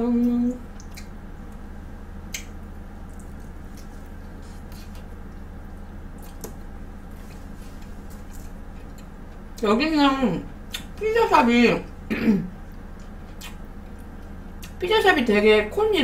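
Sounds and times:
steady low hum: 0:00.0 - 0:16.0
chewing and wet mouth sounds: 0:00.2 - 0:09.6, 0:12.6 - 0:14.8.

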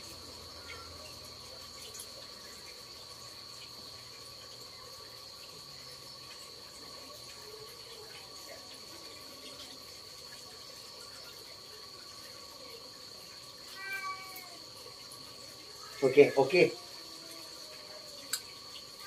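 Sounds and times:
night insects chirring: 0:00.0 - 0:19.0.

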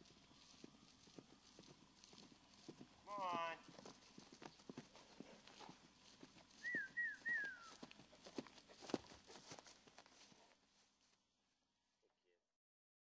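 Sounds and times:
horse hooves thudding on turf: 0:00.0 - 0:11.3
short whistled notes: 0:06.6 - 0:07.8.

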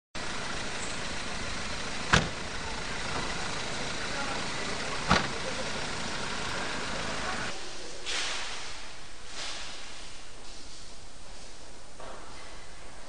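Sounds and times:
street traffic: 0:00.2 - 0:08.0.

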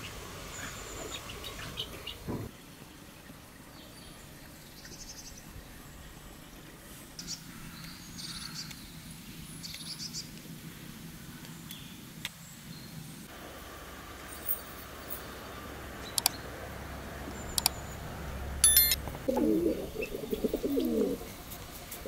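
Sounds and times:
birds chirping: 0:00.0 - 0:10.4, 0:15.2 - 0:22.0.

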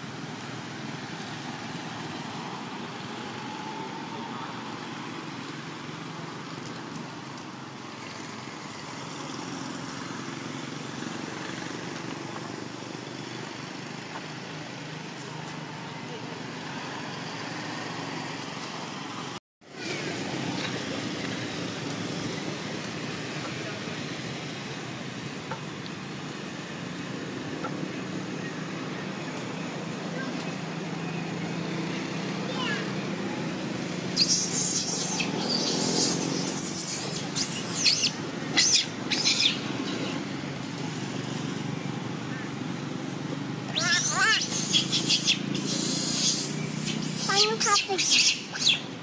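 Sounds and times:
steady outdoor background noise: 0:00.0 - 0:49.0
monkeys screaming: 0:34.1 - 0:40.1, 0:43.7 - 0:48.9.

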